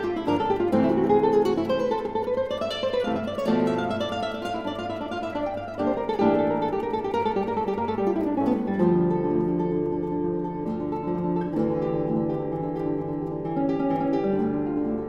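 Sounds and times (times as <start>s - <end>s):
plucked guitar music: 0.0s - 15.0s.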